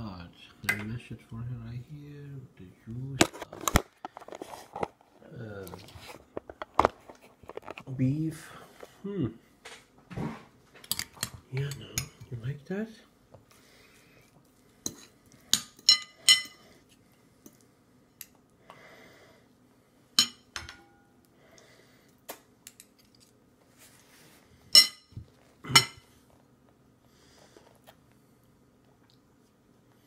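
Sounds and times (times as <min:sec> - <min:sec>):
metal spoon clinking on plate: 0:15.6 - 0:16.6, 0:24.8 - 0:25.2.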